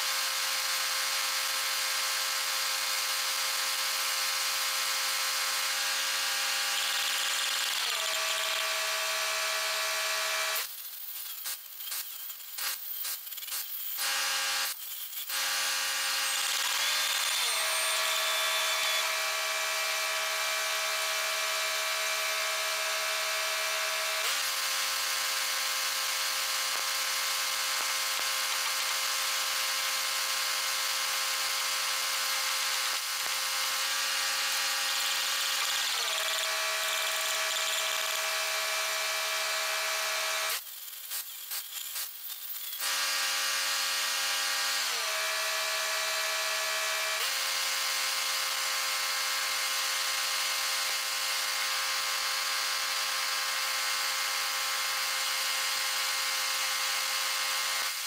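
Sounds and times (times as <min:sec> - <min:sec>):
arc welding crackling hiss: 0:10.6 - 0:15.4, 0:24.1 - 0:36.1, 0:38.8 - 0:44.2.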